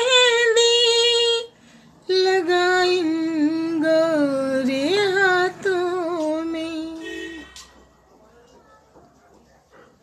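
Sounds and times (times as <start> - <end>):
woman singing unaccompanied: 0.0 - 7.6.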